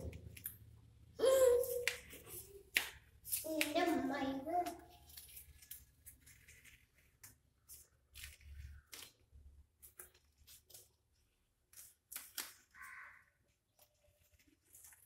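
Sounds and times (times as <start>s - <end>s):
masking tape peeling off paper: 5.0s - 15.0s.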